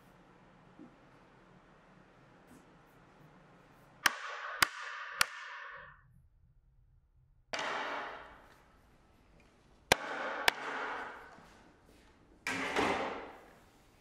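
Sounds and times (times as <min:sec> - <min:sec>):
knife striking wooden board: 0:04.0 - 0:05.7, 0:07.6 - 0:08.2.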